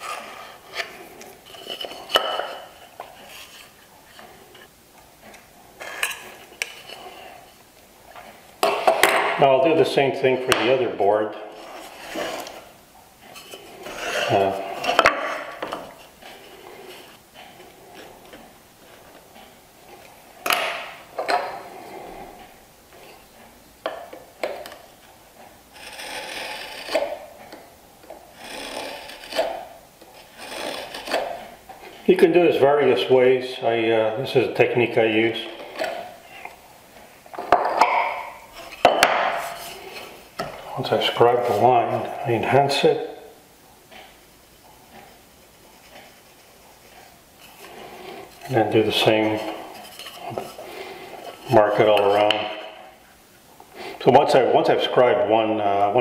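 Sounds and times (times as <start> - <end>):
knife scraping across wood: 0.0 - 4.5, 11.5 - 12.7, 13.3 - 18.1, 25.7 - 27.5, 28.3 - 32.0, 38.1 - 40.2, 45.6 - 52.3
wooden boards knocking: 37.4 - 39.4.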